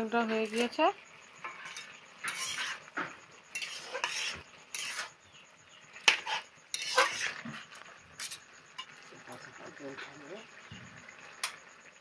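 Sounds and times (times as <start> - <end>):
metal spatula scraping a pan: 0.2 - 9.0.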